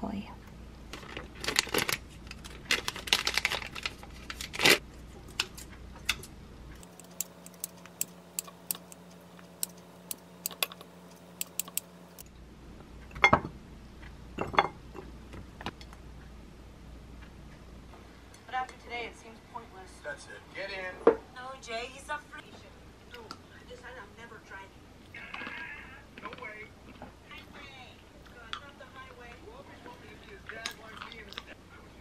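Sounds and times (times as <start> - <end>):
plastic packaging crinkling: 0.9 - 4.8
scissors snipping: 6.8 - 12.2.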